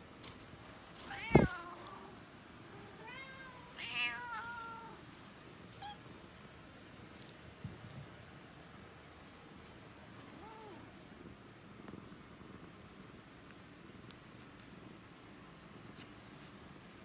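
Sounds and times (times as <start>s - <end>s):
cat meowing: 1.1s - 1.9s, 3.0s - 5.0s.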